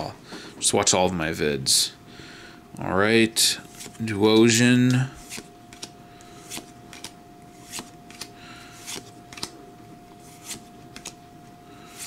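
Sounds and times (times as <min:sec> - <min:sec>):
trading cards swishing: 0:03.6 - 0:09.6, 0:10.2 - 0:11.2.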